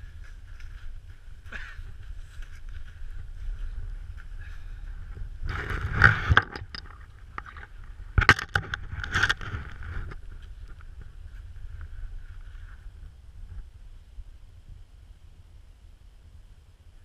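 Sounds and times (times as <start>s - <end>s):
crunching and scraping in snow: 0.0s - 6.4s, 7.0s - 13.8s
low rumble: 0.0s - 17.0s.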